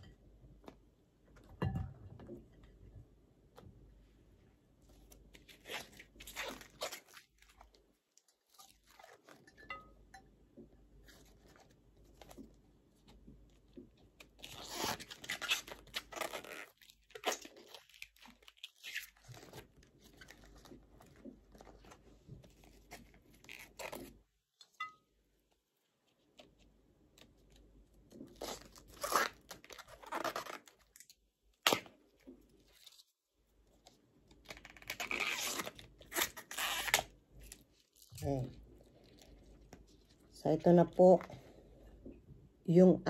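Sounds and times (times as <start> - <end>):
banana blossom bracts crunching and tearing: 5.3 - 9.4, 14.1 - 22.0, 28.1 - 33.1, 33.8 - 40.3.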